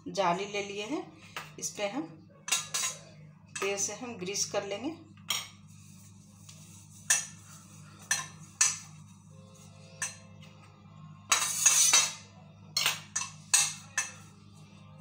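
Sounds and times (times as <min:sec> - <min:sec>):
spoon scraping steel plate: 0:06.8 - 0:09.0, 0:11.3 - 0:12.2.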